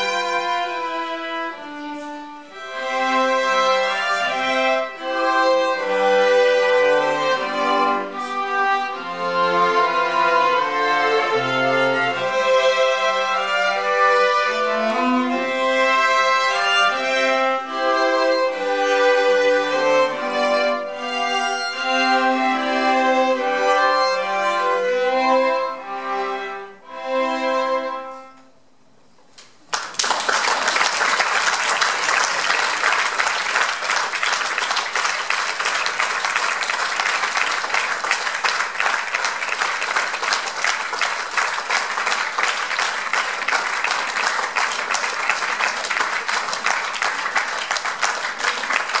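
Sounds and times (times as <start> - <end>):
string ensemble playing: 0.0 - 28.5, 30.0 - 49.0
audience applause: 29.6 - 49.0.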